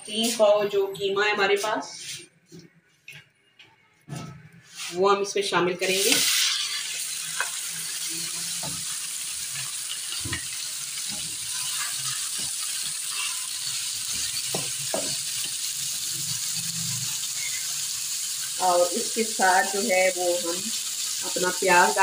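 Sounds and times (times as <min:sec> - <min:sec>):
minced meat sizzling in oil: 0:05.8 - 0:22.0.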